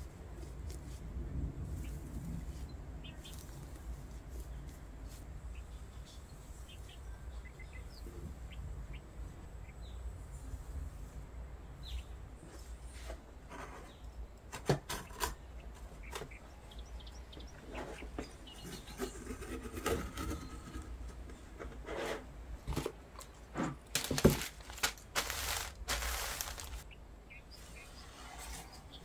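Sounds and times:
baking paper rustling: 23.8 - 26.9.

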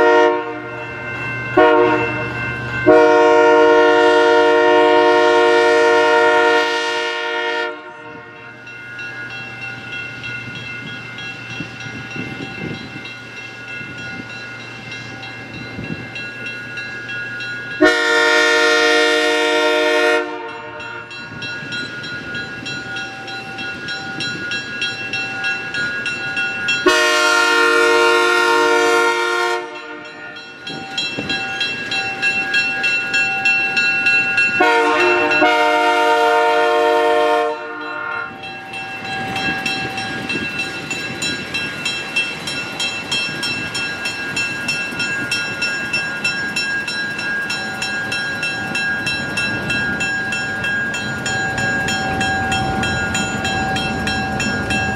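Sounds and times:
locomotive air horn blasts: 0.0 - 0.8, 1.6 - 2.2, 2.9 - 8.4, 17.8 - 21.1, 26.9 - 30.4, 34.6 - 38.3
diesel locomotive engine: 0.0 - 54.9.

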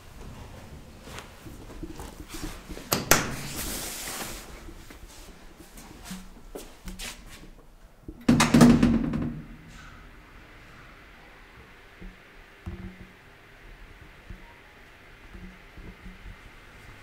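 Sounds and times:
metal door banging open: 2.9 - 3.6, 8.2 - 10.1
metal doors clunking shut: 2.9 - 3.6, 8.2 - 10.2.

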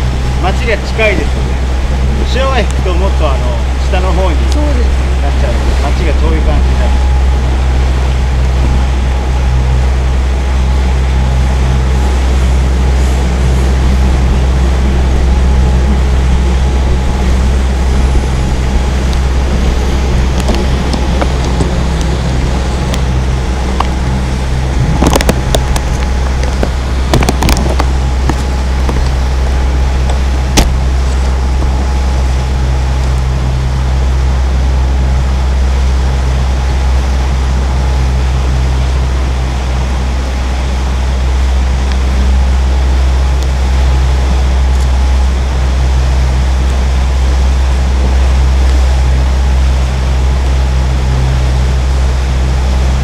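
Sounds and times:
boat engine droning: 0.0 - 53.0
sharp knocks: 30.5 - 30.8.

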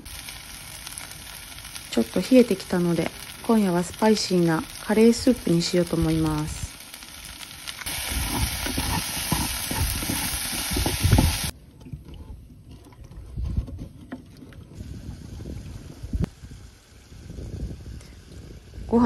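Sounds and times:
vegetables sizzling in a pot: 0.0 - 11.6
wooden spatula stirring in a pot: 7.9 - 11.5.

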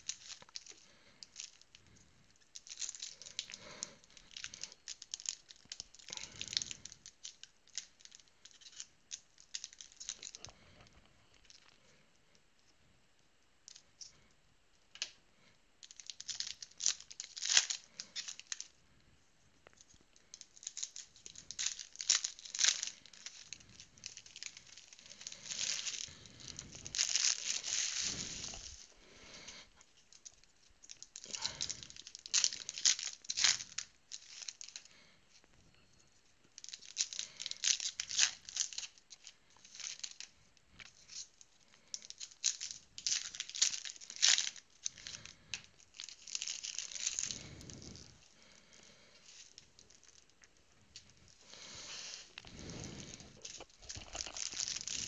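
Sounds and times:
card pack wrappers tearing: 2.5 - 10.4, 15.8 - 18.7, 20.4 - 28.9, 30.9 - 34.8, 36.6 - 39.0, 41.8 - 48.0, 51.5 - 55.0.

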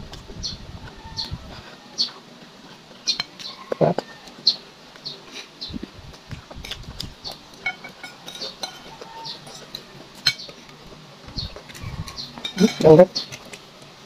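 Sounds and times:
metal spoon scraping a bowl: 7.6 - 10.5, 11.6 - 13.4.

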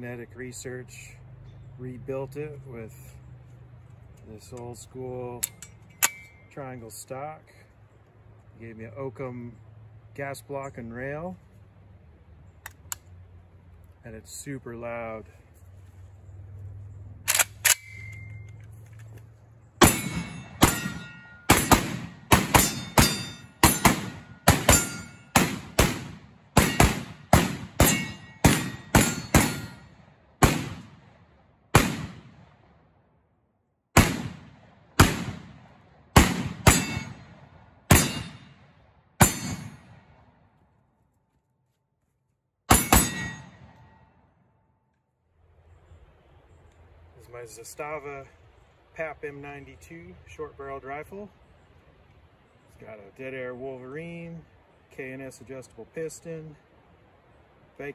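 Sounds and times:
sharp gun clicks: 12.6 - 13.2, 17.2 - 19.2
rifle gunshots: 19.8 - 32.6, 34.0 - 40.2.

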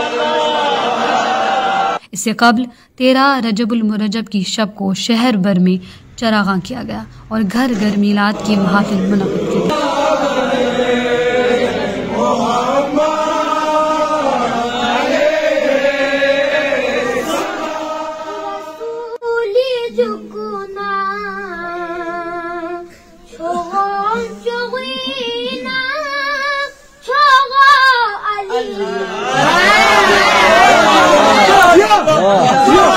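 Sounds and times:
boys singing unaccompanied: 7.8 - 31.6.

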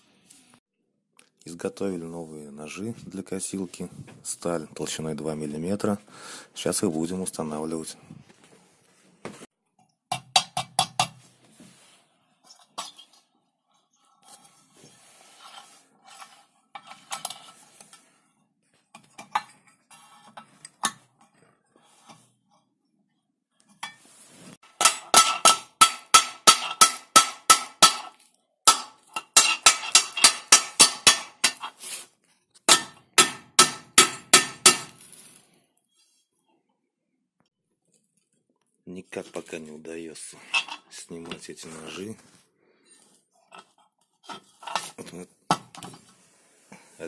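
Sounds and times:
hammer striking steel disc: 24.7 - 31.6, 32.7 - 35.0.

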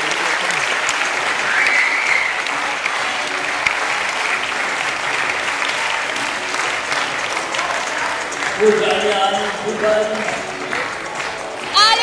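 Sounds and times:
crowd clapping: 0.0 - 12.0
whistle: 1.5 - 2.4.

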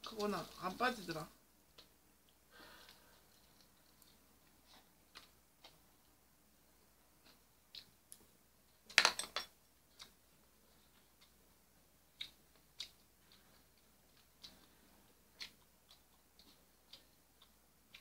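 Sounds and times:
chewing and mouth sounds: 1.7 - 6.1, 12.1 - 18.0.

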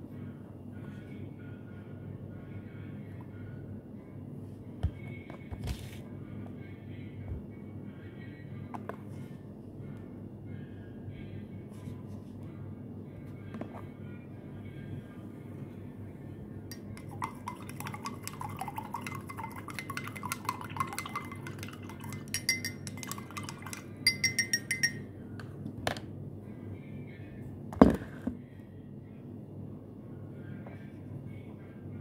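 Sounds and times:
spoon clinking in glass: 16.7 - 25.1.

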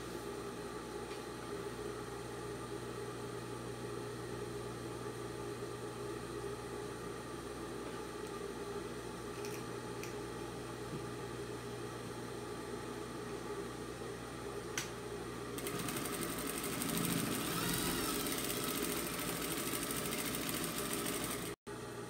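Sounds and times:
sewing machine motor humming: 15.6 - 21.6
sewing needle running fast: 15.6 - 21.6.

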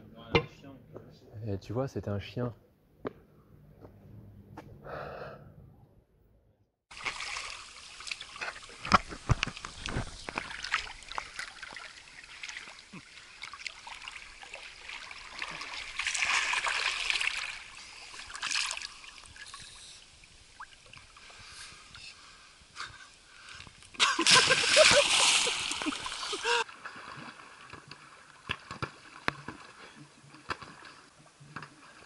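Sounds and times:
water splashing and trickling: 6.9 - 32.0.

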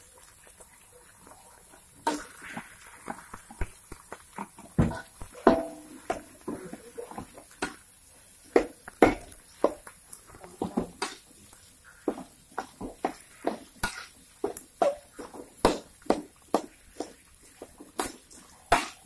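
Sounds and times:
metal spatula scraping a wok: 13.2 - 14.2.

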